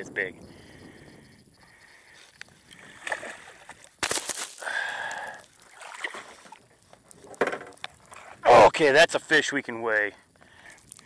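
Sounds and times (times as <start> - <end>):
fish thrashing and splashing: 2.8 - 8.4.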